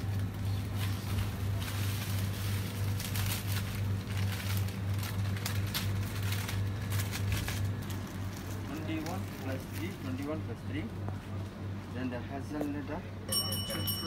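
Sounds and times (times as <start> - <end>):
plastic packets crinkling: 0.0 - 10.9
steady low hum: 0.0 - 14.0.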